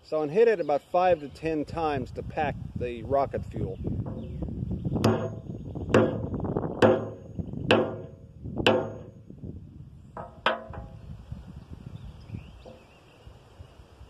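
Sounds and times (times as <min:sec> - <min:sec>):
hammer knocking on wooden rod: 0:04.0 - 0:04.3, 0:05.0 - 0:09.2, 0:10.2 - 0:11.0.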